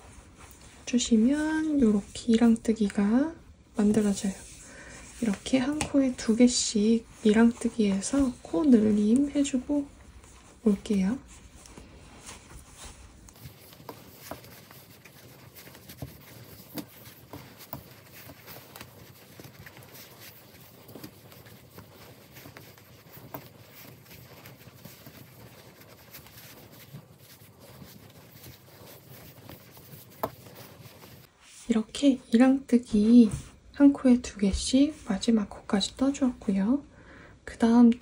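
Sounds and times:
yarn rustling: 0:03.8 - 0:31.8.

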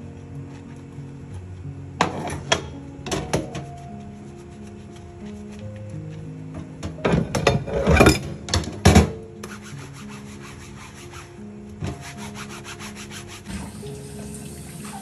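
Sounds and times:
soft background music: 0:00.0 - 0:15.0.

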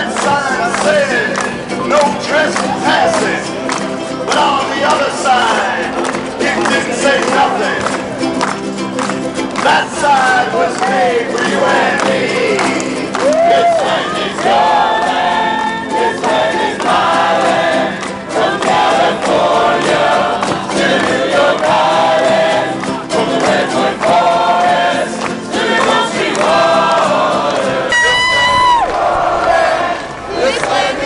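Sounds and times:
man singing: 0:00.0 - 0:03.6, 0:04.2 - 0:08.0, 0:09.6 - 0:14.8
acoustic guitar: 0:00.0 - 0:31.0
group singing folk song: 0:00.0 - 0:31.0.

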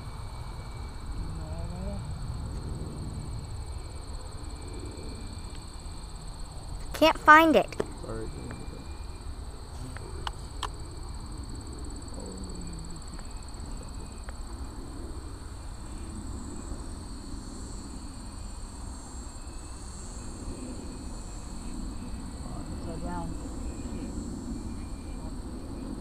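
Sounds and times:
low outdoor rumble: 0:00.0 - 0:17.1
insects trilling: 0:00.0 - 0:26.0.

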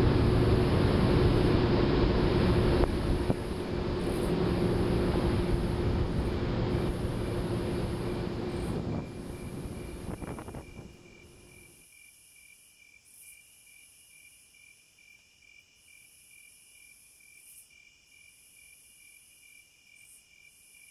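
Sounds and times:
boat rumbling: 0:00.0 - 0:11.6
insects chirring: 0:00.3 - 0:20.9.

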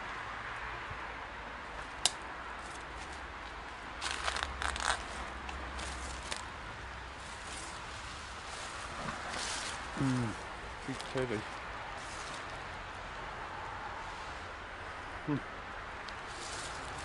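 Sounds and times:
footsteps crunching through dry leaves: 0:04.0 - 0:06.4, 0:12.0 - 0:12.6, 0:16.3 - 0:17.0.

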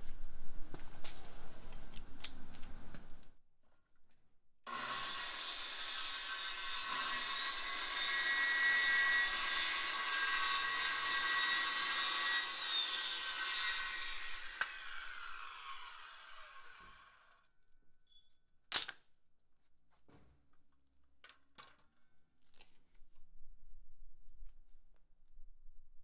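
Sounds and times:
circular saw cutting wood: 0:04.7 - 0:17.4.

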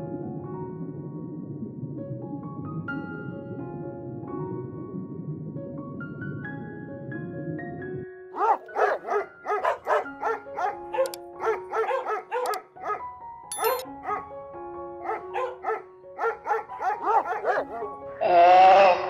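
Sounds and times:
soft background music: 0:00.0 - 0:19.0
dog barking: 0:08.4 - 0:13.1, 0:14.0 - 0:14.3, 0:15.0 - 0:17.9.

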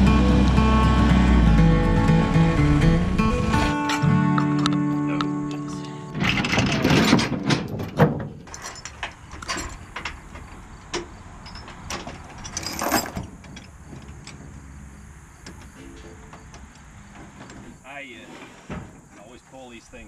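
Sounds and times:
chains clattering and clanking: 0:06.1 - 0:14.9.

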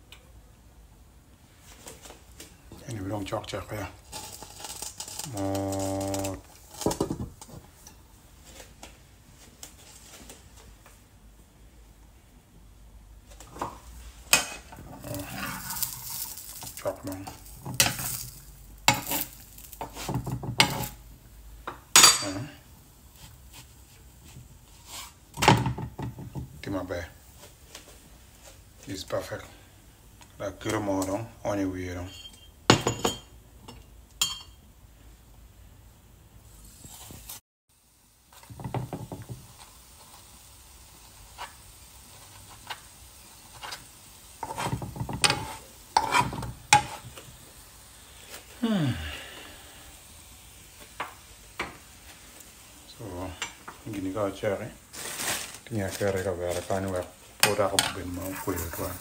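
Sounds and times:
metal spatula scraping frying pan: 0:04.0 - 0:07.5, 0:14.3 - 0:21.0, 0:43.5 - 0:47.1, 0:57.4 - 0:59.0.

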